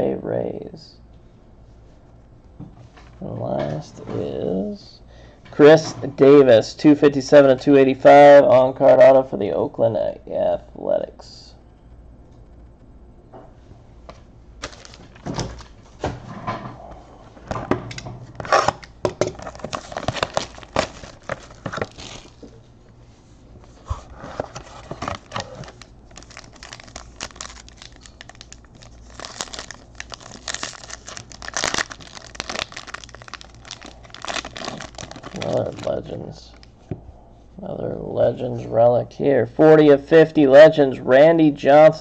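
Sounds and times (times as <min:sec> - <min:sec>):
foil wrapper crinkling and tearing: 0:14.6 - 0:15.8, 0:18.4 - 0:22.6, 0:24.5 - 0:36.7.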